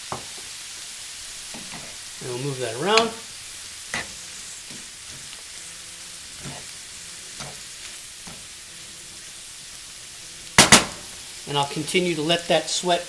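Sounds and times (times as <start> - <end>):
vegetables sizzling in butter: 0.0 - 13.0
wooden spoon stirring and scraping: 6.2 - 9.4
sharp loud knock: 10.6 - 11.0.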